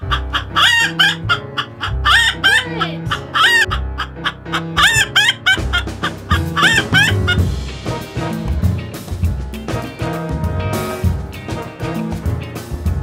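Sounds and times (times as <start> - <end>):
hen clucking and cackling: 0.0 - 7.4
music with beat and bass: 4.8 - 13.0.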